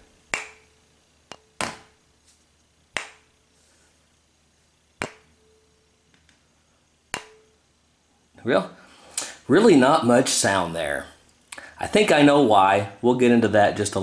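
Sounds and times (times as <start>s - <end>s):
faint tuning fork tone: 5.2s - 6.0s, 7.2s - 7.7s.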